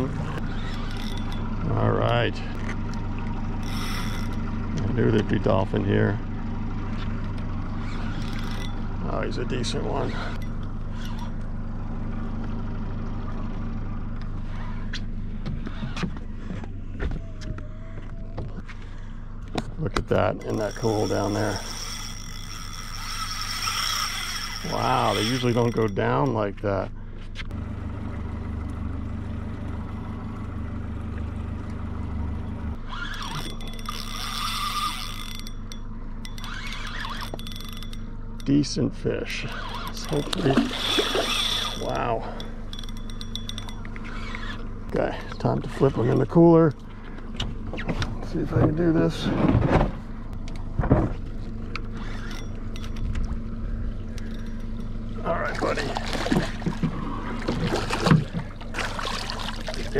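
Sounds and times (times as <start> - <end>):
fishing reel whirring: 0.0 - 1.8, 2.6 - 5.9, 7.1 - 11.4, 20.4 - 26.4, 32.7 - 38.6, 39.2 - 44.7, 51.8 - 56.6
low steady hum: 0.0 - 59.9
outboard motor idling: 0.0 - 59.9.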